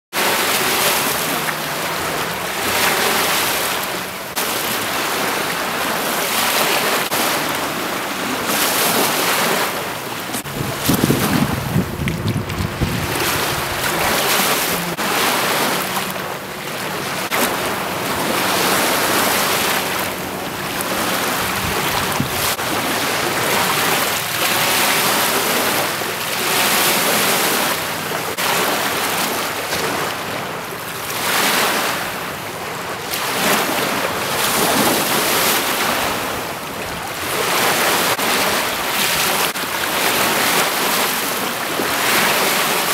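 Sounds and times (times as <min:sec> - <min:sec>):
lake waves lapping on shore: 0:00.1 - 0:42.9
wind buffeting microphone: 0:07.8 - 0:16.3, 0:17.6 - 0:24.1.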